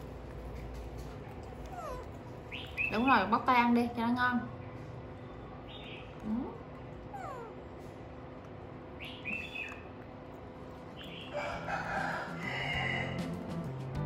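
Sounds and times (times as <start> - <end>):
rooster crowing: 11.3 - 13.4.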